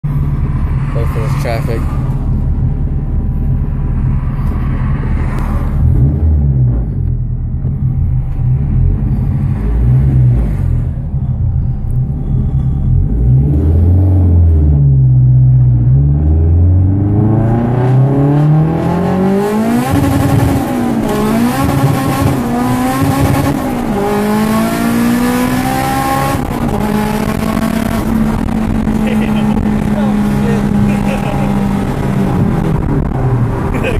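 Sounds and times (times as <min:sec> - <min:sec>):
turbocharged car engine: 0:00.0 - 0:33.9.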